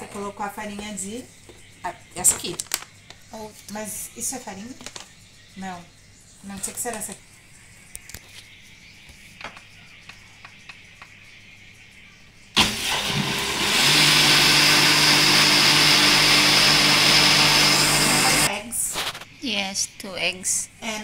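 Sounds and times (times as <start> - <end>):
blender blending liquid: 12.6 - 18.5.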